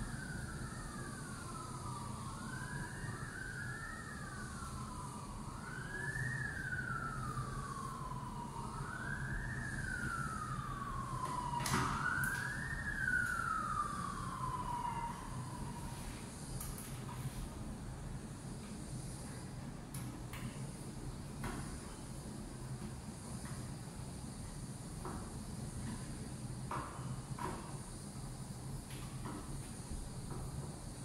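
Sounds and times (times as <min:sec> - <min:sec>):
emergency siren wailing: 0:00.0 - 0:16.4.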